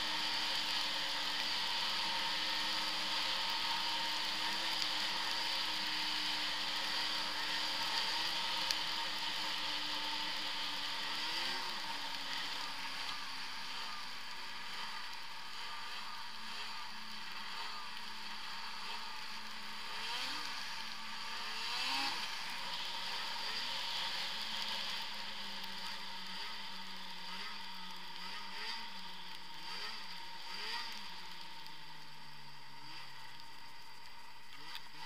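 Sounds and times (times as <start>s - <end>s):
snowmobile engine running: 0.0s - 35.0s.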